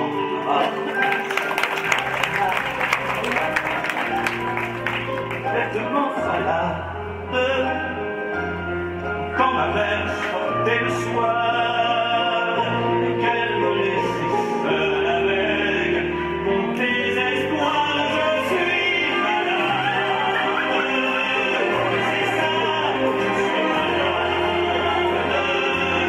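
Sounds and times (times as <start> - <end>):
operatic singing voice: 5.5 - 8.4, 9.2 - 26.0.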